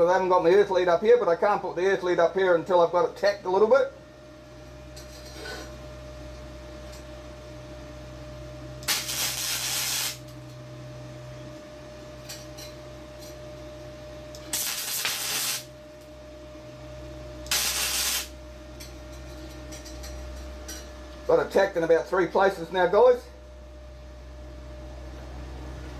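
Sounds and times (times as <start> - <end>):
steady low hum: 0.0 - 25.9
welding arc bursts: 8.8 - 10.2, 14.4 - 15.7, 17.5 - 18.4.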